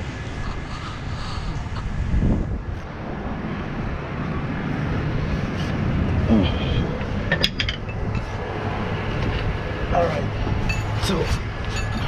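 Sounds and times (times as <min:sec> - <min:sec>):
steady low hum: 0:00.0 - 0:12.0
sharp metallic clinks: 0:10.6 - 0:12.0.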